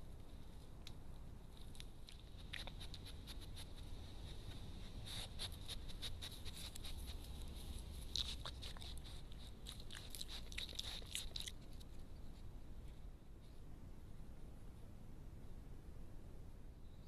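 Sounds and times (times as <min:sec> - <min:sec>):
animal scratching at microphone: 0:02.2 - 0:12.4.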